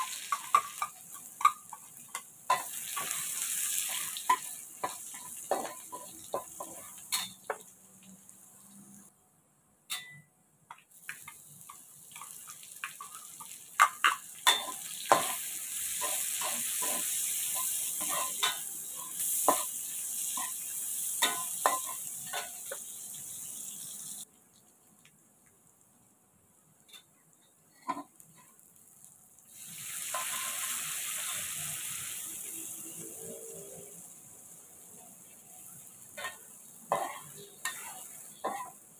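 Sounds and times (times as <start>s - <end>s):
spatula tapping a pan: 0.0s - 3.2s
garlic sizzling in hot oil: 0.0s - 9.1s, 10.7s - 25.1s, 28.0s - 38.9s
spatula scraping a wok: 12.2s - 22.8s, 35.6s - 38.9s.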